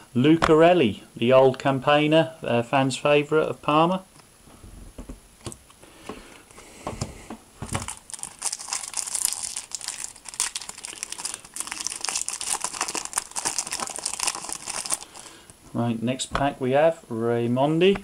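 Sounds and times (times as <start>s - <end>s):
foil wrapper crinkling: 7.6s - 15.5s.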